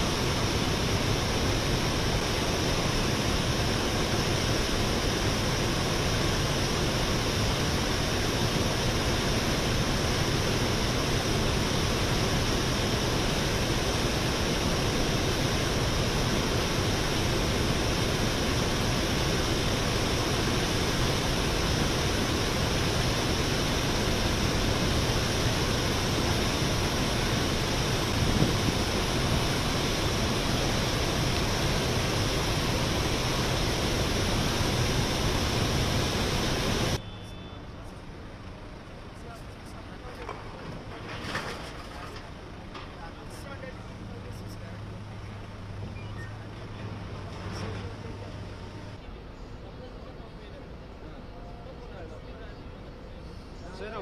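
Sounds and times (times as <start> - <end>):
water rushing over spillway: 0.0 - 37.0.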